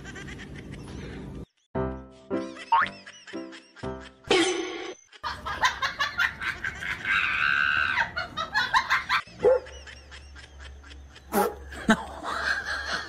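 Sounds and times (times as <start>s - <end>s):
dog yipping and barking: 9.4s - 9.8s.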